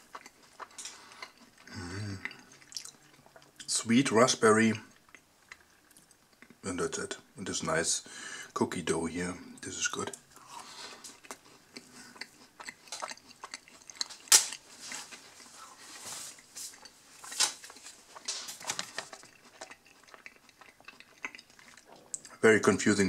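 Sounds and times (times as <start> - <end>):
person chewing cookie: 0.0 - 3.7, 4.8 - 6.6, 10.0 - 22.4
wet mouth clicks: 11.0 - 14.6, 18.9 - 22.4.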